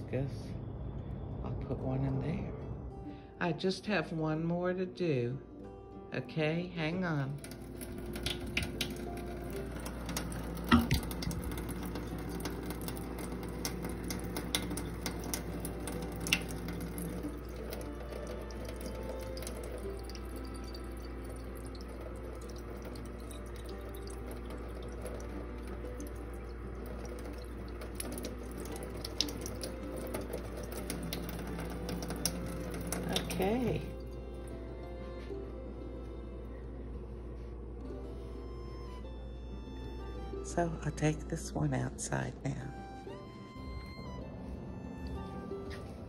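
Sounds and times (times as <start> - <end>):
faucet water stream: 7.3 - 34.8.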